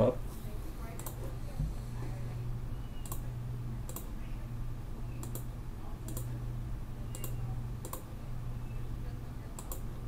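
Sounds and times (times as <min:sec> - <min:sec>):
steady low hum: 0:00.0 - 0:10.0
computer mouse clicking: 0:01.0 - 0:01.2, 0:03.0 - 0:03.3, 0:03.9 - 0:04.1, 0:05.2 - 0:06.4, 0:07.1 - 0:08.1, 0:09.6 - 0:09.9.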